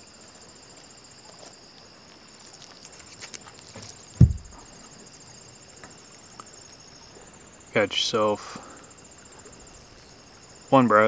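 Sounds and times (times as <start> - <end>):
insects trilling: 0.0 - 11.0
dull low thump: 3.8 - 4.9.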